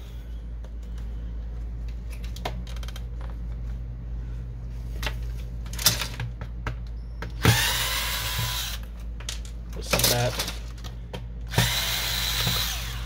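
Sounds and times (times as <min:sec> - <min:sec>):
clicks and knocks of parts: 0:01.9 - 0:03.5, 0:05.0 - 0:07.3, 0:08.4 - 0:11.6
electric screwdriver running: 0:07.4 - 0:08.8, 0:11.5 - 0:13.0.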